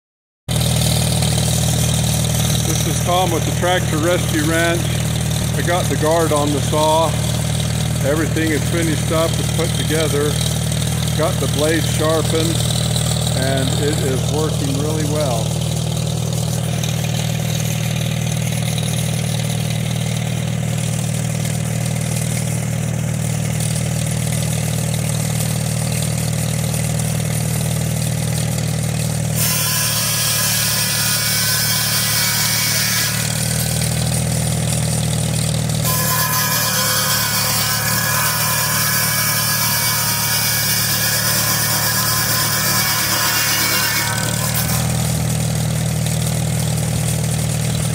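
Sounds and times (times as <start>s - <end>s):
tractor engine running: 0.5s - 29.4s, 33.2s - 36.0s, 44.0s - 47.9s
buzz saw cutting log: 0.5s - 47.9s.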